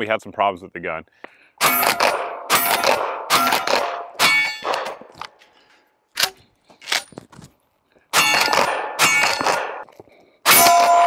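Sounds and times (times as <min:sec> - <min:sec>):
shotgun shots: 0:01.6 - 0:05.0, 0:08.2 - 0:09.8, 0:10.5 - 0:11.0.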